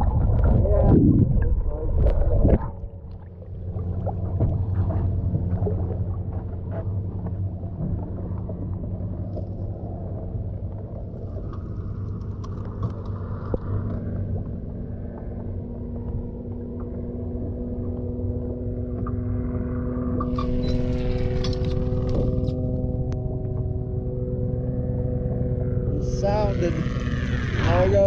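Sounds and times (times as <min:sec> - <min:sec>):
loud low rumble: 0:00.0 - 0:11.3, 0:19.2 - 0:28.0
boat engine humming: 0:00.0 - 0:28.0.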